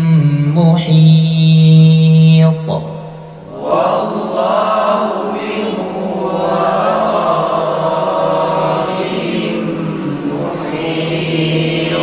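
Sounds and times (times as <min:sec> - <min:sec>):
group of voices chanting: 0:03.4 - 0:12.0.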